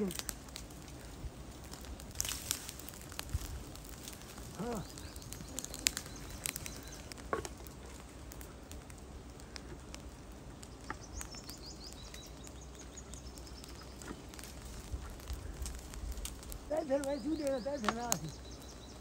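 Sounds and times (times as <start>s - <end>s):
sharp crackles and snaps: 0.0s - 19.0s
high bird chirps: 4.6s - 7.2s, 10.8s - 14.3s, 16.7s - 19.0s.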